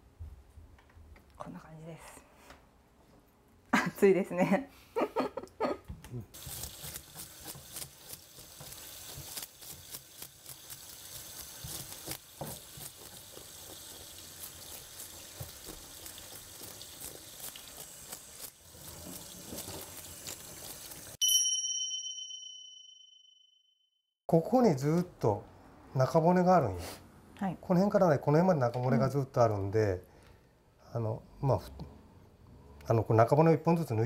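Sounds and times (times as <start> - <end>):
bright chime sound effect: 21.2 - 23.7.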